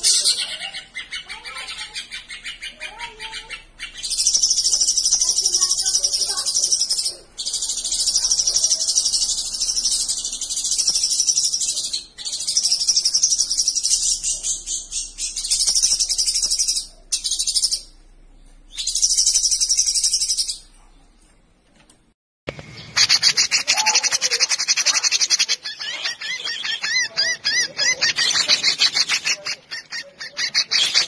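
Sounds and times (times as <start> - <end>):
bird chattering song: 0.0 - 20.8, 22.5 - 31.0.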